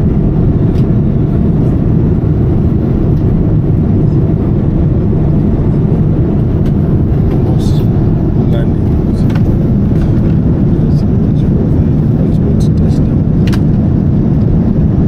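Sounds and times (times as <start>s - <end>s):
airflow over fuselage: 0.0s - 15.0s
low engine rumble in cabin: 0.0s - 15.0s.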